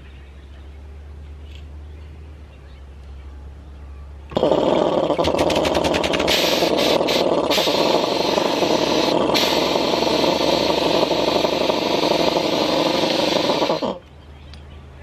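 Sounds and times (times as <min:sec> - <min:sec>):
air compressor running: 0:04.3 - 0:14.0.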